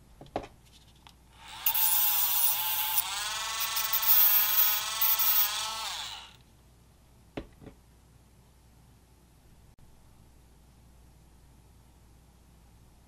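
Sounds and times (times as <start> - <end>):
rotary tool cutting metal rod: 1.4 - 6.4.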